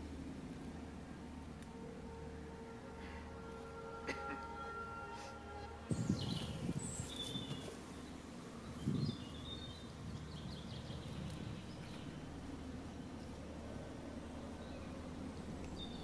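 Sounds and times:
birds chirping: 5.9s - 16.0s.

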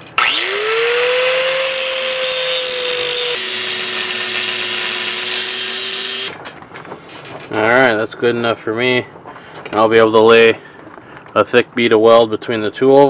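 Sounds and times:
angle grinder whining: 0.0s - 6.4s.

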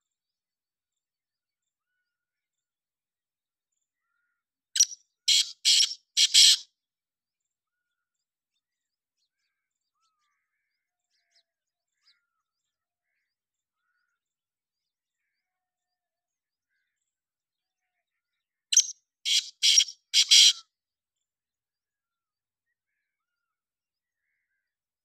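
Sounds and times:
francolin call with scratchy notes: 19.3s - 20.6s.

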